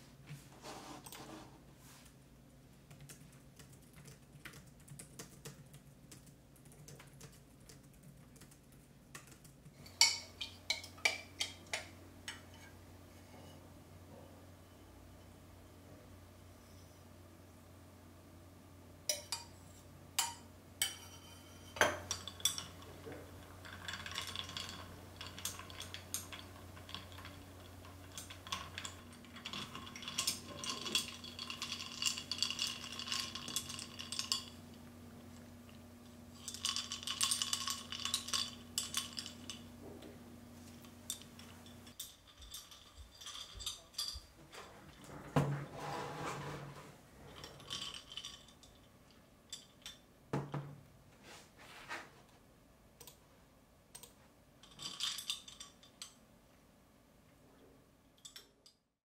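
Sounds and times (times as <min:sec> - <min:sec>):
faint steady hum: 0:00.0 - 0:58.9
spoon clinking against glass: 0:20.2 - 0:22.9, 0:23.6 - 0:34.6.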